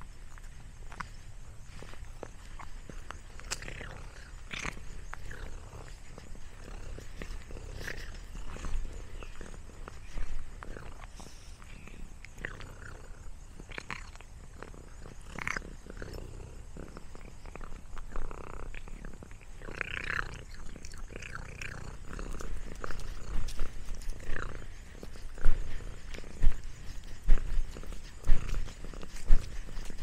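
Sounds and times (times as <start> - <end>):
rustling in dry leaves: 21.7 - 30.0.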